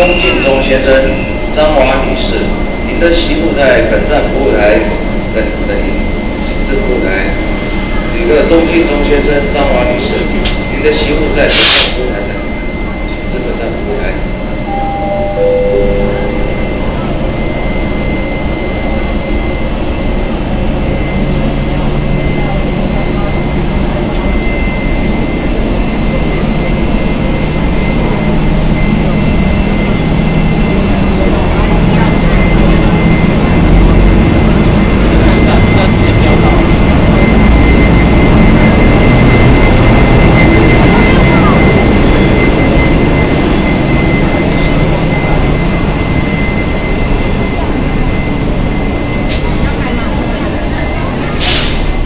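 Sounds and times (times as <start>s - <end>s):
electric locomotive machine noise: 0.0s - 52.0s
thin steady high tone: 0.0s - 52.0s
train rumbling past: 0.0s - 52.0s
low hum: 12.1s - 52.0s.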